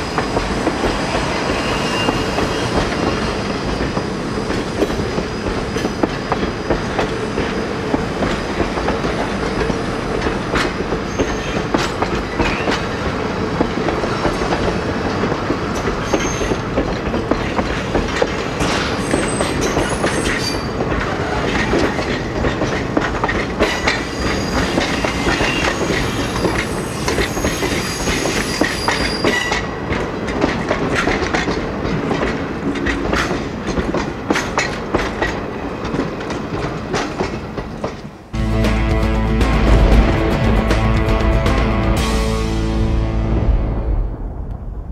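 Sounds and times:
train wheels clicking over rail joints: 0.0s - 38.3s
high-pitched wheel squeals: 1.1s - 3.3s, 23.7s - 29.6s.

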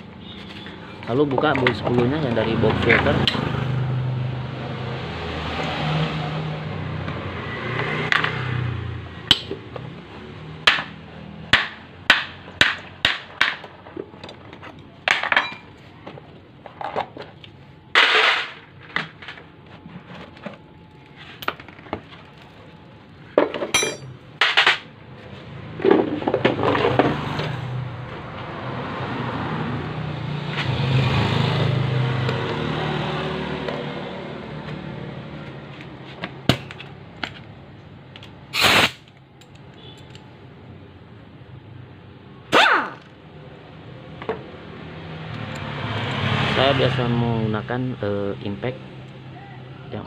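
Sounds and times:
metal tools clinking: 23.4s - 24.8s.

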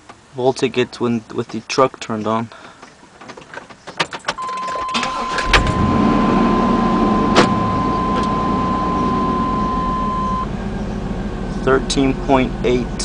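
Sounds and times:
truck engine cranking and running: 2.6s - 13.0s
ignition clicks: 3.3s - 10.4s
high electronic warning tone: 4.4s - 10.5s.

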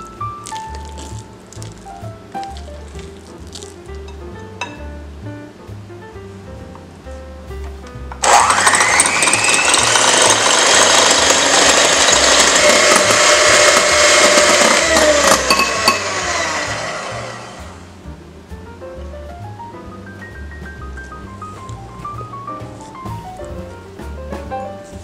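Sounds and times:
soft background music: 0.0s - 8.2s, 15.1s - 25.0s
electric hand mixer whirring: 8.2s - 17.9s.

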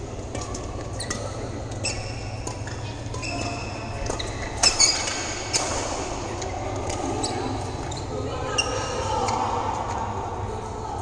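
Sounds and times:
racket hitting shuttlecock: 0.2s - 7.6s
shoes squeaking on court: 0.2s - 10.0s.

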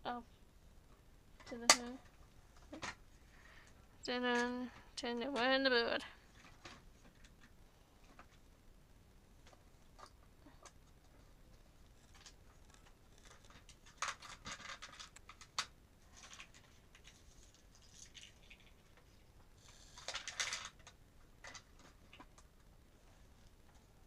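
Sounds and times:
toy plastic clicks and rattles: 19.8s - 22.3s.

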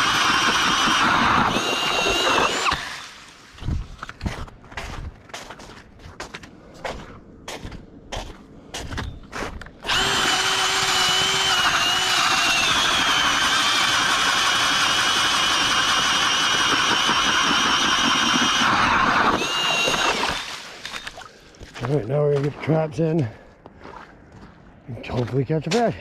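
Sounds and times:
cordless drill whining: 0.0s - 3.3s, 9.8s - 21.1s
footsteps crunching on ice: 3.6s - 9.8s, 21.2s - 26.0s.

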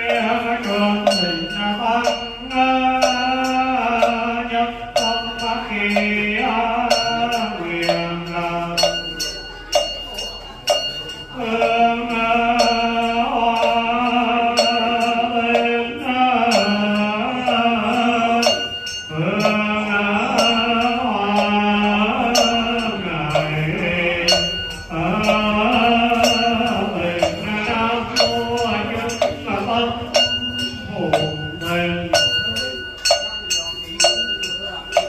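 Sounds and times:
monk chanting: 0.0s - 35.0s
sharp percussion strike: 22.2s - 35.0s.

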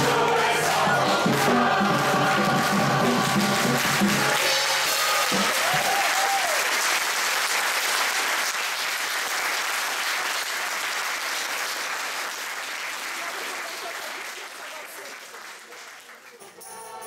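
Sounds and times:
choir singing final chord: 0.0s - 5.6s
audience applause: 0.0s - 16.7s.

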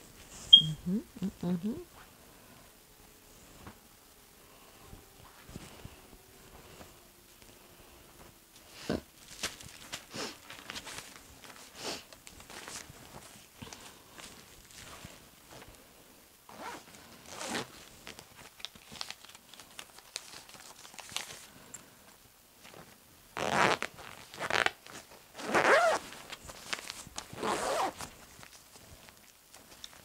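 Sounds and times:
fabric rustling: 9.2s - 15.8s, 16.5s - 21.5s, 22.6s - 30.0s
zipper being pulled closed: 16.5s - 17.7s, 23.4s - 24.7s, 25.4s - 26.0s, 27.4s - 28.1s.

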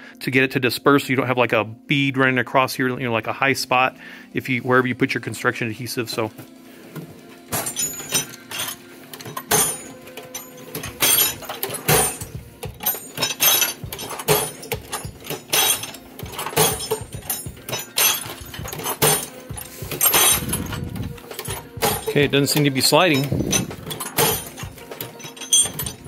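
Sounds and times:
drawers opening and shutting: 6.2s - 26.0s
metal tools clattering in drawers: 7.0s - 26.0s.

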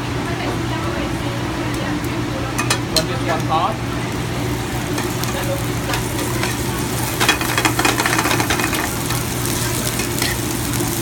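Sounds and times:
chicken sizzling in a frying pan: 2.6s - 11.0s.

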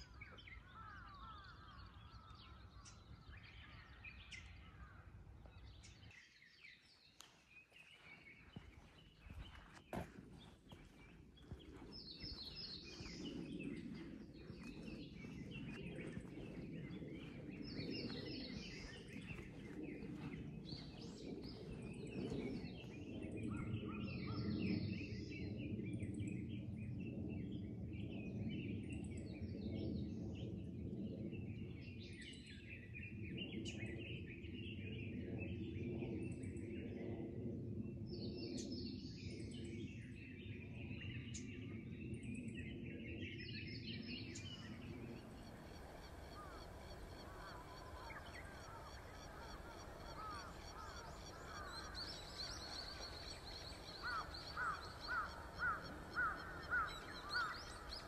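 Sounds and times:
small birds chirping and singing: 0.0s - 30.7s, 38.2s - 58.0s
footsteps on path: 6.6s - 23.1s, 44.6s - 58.0s
steady low rumble: 7.8s - 26.8s, 43.9s - 58.0s.

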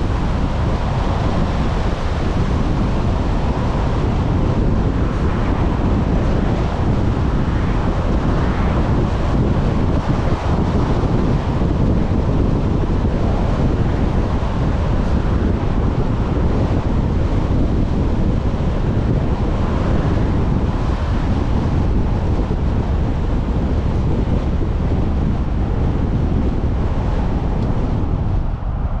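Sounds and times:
road noise of driving: 0.0s - 29.0s
wind buffeting microphone: 0.0s - 29.0s.

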